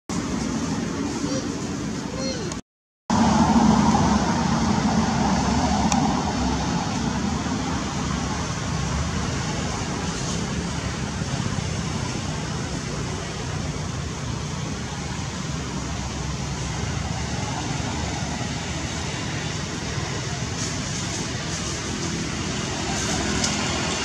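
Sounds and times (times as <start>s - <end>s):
low rumble: 3.1s - 7.8s
steady rushing noise: 3.1s - 24.0s.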